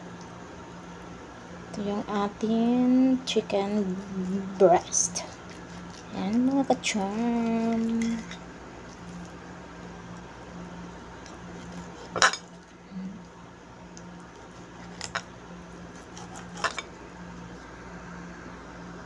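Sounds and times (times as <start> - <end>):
knife cutting raw chicken: 3.8 - 8.3, 14.4 - 16.9
knife clinking on ceramic plate: 12.2 - 12.5.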